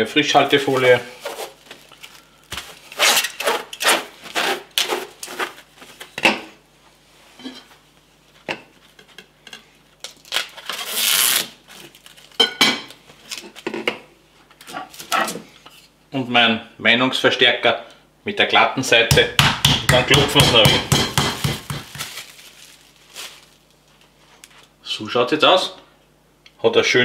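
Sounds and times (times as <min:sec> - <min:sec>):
cling film crinkling and rustling: 0:00.5 - 0:03.9, 0:10.0 - 0:12.4, 0:21.6 - 0:24.7.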